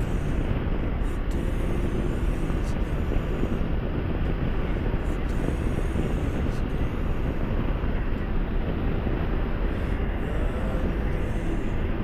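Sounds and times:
wind and road noise: 0.0s - 12.0s.

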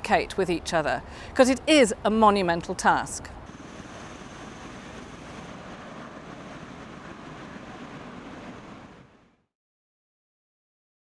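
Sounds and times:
aircraft rushing noise: 3.4s - 9.5s
faint high whine: 3.5s - 9.5s.

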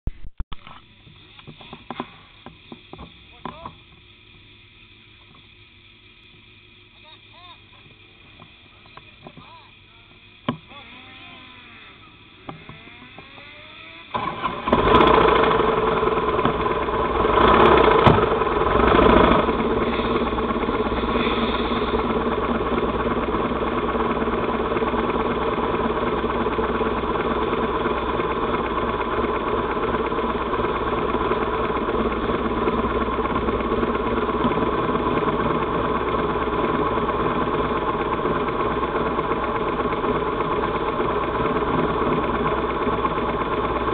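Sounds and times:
motorcycle engine starting and revving: 9.8s - 43.9s.

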